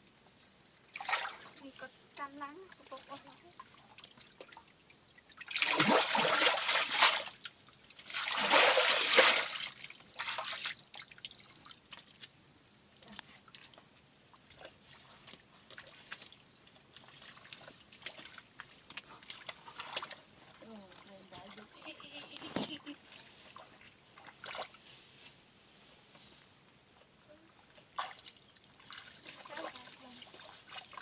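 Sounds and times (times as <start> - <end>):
muddy water sloshing: 0.9 - 12.4, 13.1 - 24.8, 27.6 - 31.0
loud splashes: 5.4 - 7.4, 8.1 - 10.7.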